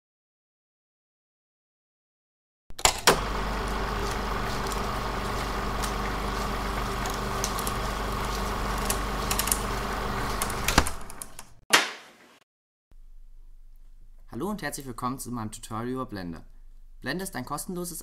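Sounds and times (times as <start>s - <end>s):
mechanical hum with hiss: 2.9s - 11.6s.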